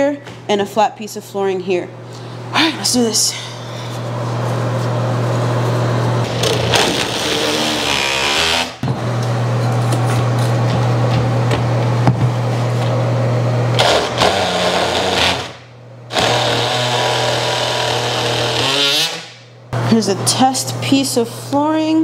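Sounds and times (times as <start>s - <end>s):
oscillating multi-tool buzzing: 6.2s - 8.8s, 13.8s - 19.4s.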